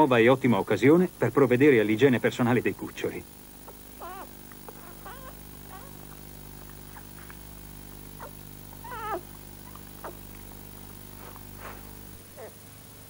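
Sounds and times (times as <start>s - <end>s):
puppies mewling: 3.6s - 7.4s, 8.1s - 10.4s, 12.2s - 12.6s.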